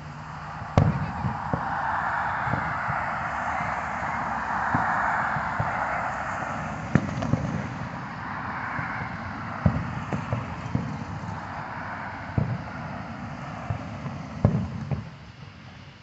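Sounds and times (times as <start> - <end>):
distant firework booms: 0.6 - 8.0, 9.6 - 11.3, 12.3 - 12.9.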